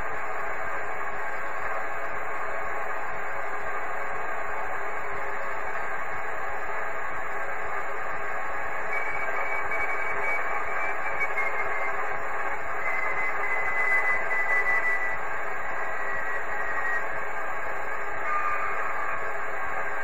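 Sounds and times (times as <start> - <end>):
falling whistling tone: 8.9 - 12.0, 12.8 - 15.2.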